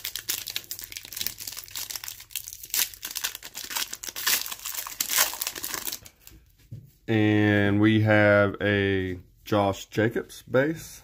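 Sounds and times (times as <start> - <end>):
foil wrapper crinkling and tearing: 0.0 - 6.3.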